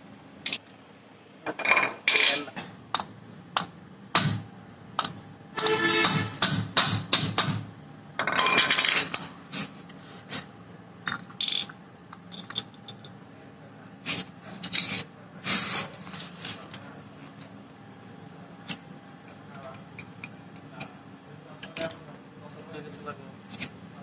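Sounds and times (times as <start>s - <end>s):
metal parts clinking and scraping: 1.6s - 2.5s, 8.2s - 9.2s, 11.1s - 13.1s, 14.5s - 15.0s.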